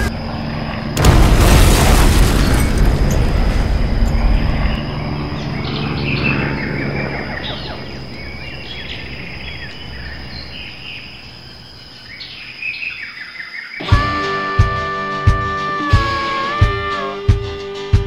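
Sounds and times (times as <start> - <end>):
low rumble: 1.0 - 9.0
birds chirping: 1.7 - 13.9
high insect buzz: 15.1 - 18.0.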